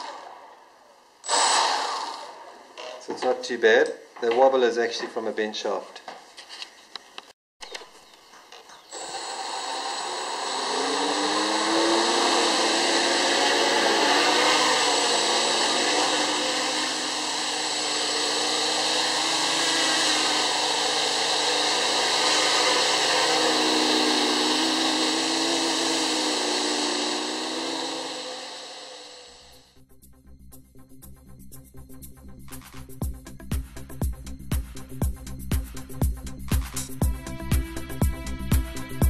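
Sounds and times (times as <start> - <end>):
quadcopter motors and propellers: 0.0 - 0.6, 1.2 - 3.2, 8.5 - 29.6.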